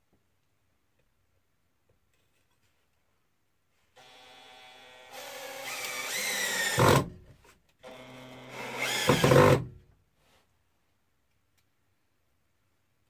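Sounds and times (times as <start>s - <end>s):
cordless drill driving screws: 4.0s - 7.1s, 7.8s - 9.7s.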